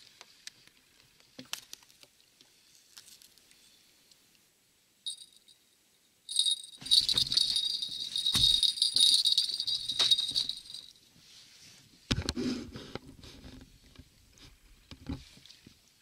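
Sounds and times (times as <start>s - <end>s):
bite bell jingling: 5.1s - 5.6s, 6.3s - 10.9s.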